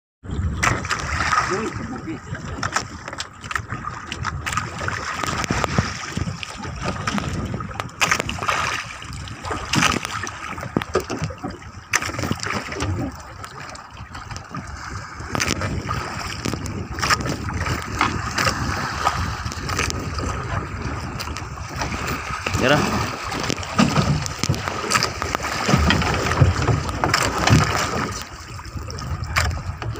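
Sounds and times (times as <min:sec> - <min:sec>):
sea water splashing around boat: 0:00.2 - 0:29.9
sharp knocks and clicks: 0:09.7 - 0:13.0, 0:23.3 - 0:28.3.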